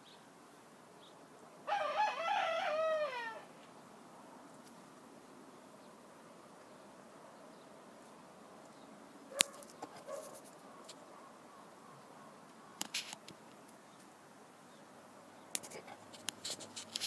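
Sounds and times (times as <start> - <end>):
faint steady hiss: 0.0 - 17.0
soft rustling: 9.4 - 11.0, 15.6 - 17.0.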